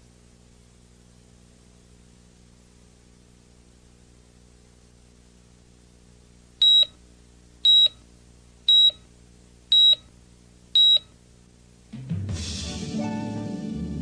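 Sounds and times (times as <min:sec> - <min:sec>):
faint low hum: 0:00.0 - 0:11.9.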